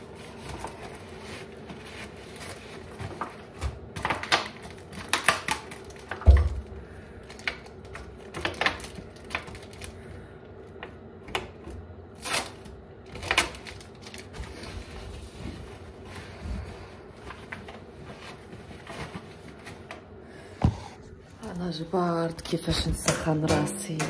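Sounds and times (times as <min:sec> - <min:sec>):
paper rustling: 0:00.0 - 0:06.2, 0:12.2 - 0:20.0
plastic water bottle crinkling: 0:00.0 - 0:10.0, 0:12.2 - 0:15.8.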